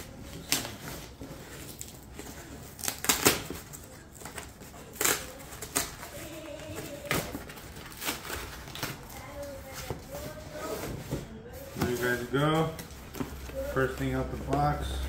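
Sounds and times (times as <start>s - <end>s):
cardboard snapping and ripping: 0.3s - 6.1s.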